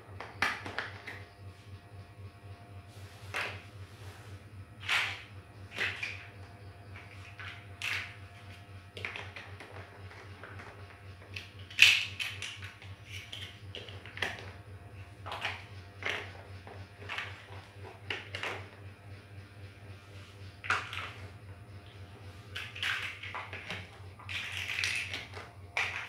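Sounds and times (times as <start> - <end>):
plastic blocks clacking: 22.6 - 26.0.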